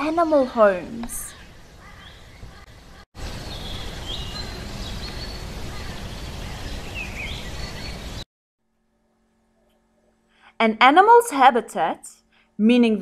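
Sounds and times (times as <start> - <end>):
birds chirping: 0.0 - 8.2.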